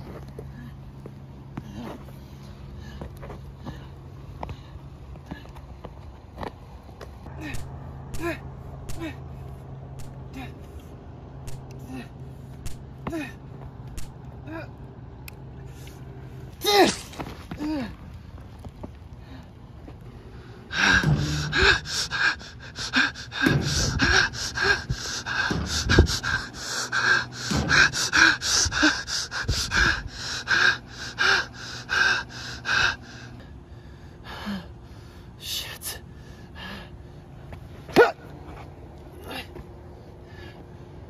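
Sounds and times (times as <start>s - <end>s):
man panting: 0.0s - 5.9s, 7.2s - 9.4s, 11.5s - 14.8s, 19.0s - 37.6s, 39.2s - 41.0s.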